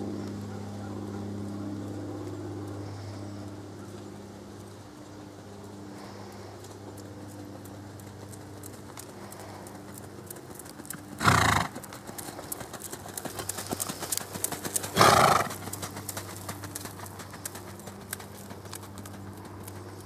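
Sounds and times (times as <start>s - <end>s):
hooves on gravel: 0.0s - 20.0s
horse snorting: 11.2s - 11.8s, 14.9s - 15.7s.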